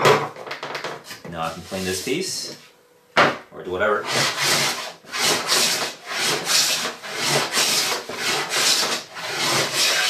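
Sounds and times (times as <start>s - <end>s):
hand plane shaving wood: 4.0s - 10.0s.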